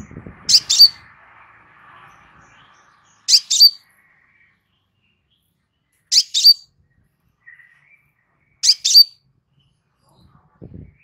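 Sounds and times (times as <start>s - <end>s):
bird calling high chips: 0.5s - 1.0s, 3.3s - 3.9s, 6.0s - 6.7s, 8.6s - 9.2s.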